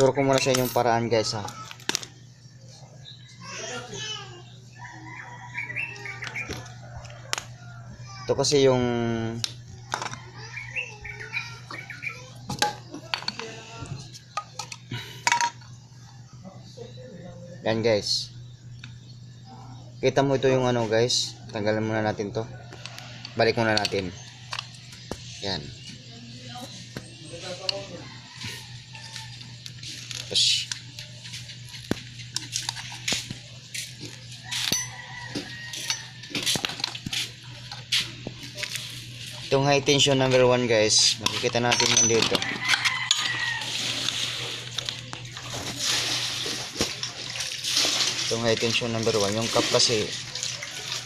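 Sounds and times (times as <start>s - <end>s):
clicks and knocks of engine parts: 41.1s - 43.3s.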